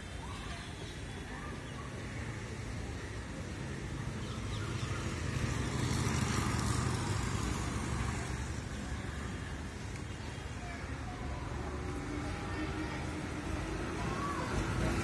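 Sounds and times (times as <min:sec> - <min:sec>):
vehicle engine passing by: 0:04.3 - 0:09.4.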